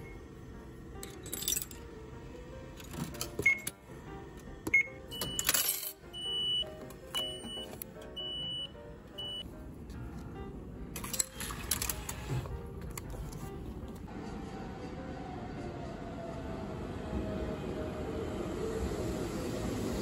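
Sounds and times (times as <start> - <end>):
coins clattering: 1.0 - 1.8, 5.1 - 6.0, 11.0 - 12.3.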